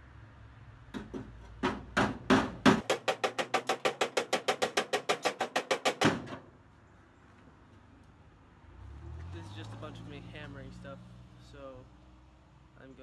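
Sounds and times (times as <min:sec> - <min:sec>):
hammer blows on sheet steel: 0:01.0 - 0:06.4.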